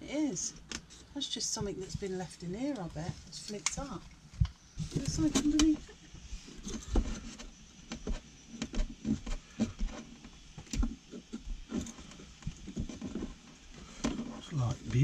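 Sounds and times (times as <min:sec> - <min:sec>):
fingers scratching sealant: 0:06.6 - 0:15.0.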